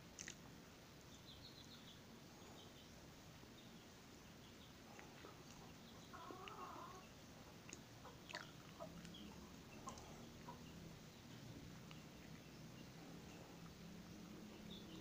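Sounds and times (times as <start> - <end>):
faint animal call: 5.2 - 7.2.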